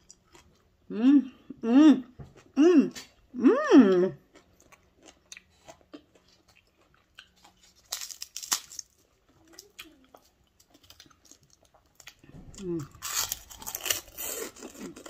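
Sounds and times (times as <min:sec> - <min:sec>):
chewing with wet mouth clicks: 0:04.3 - 0:08.6
crackly tearing of meat: 0:07.2 - 0:12.2, 0:13.0 - 0:15.0.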